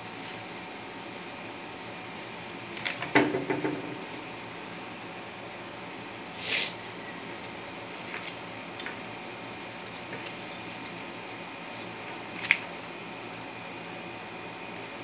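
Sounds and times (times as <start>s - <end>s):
steady background hiss: 0.0s - 15.0s
paper banknotes rustling: 1.8s - 3.1s, 6.8s - 9.1s, 9.7s - 13.1s.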